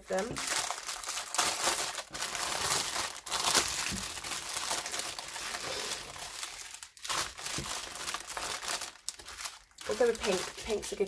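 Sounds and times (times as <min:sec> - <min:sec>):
plastic bag crinkling: 0:00.0 - 0:11.0
small packets shifting: 0:00.0 - 0:11.0.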